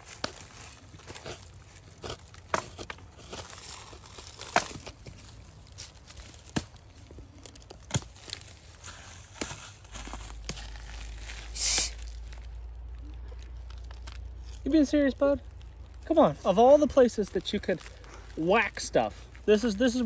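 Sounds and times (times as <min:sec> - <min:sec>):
knife carving into log: 0:00.1 - 0:08.7.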